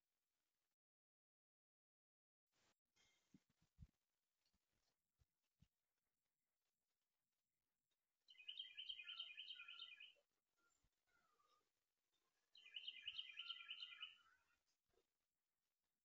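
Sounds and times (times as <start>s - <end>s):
faint songbird singing: 7.8s - 15.1s.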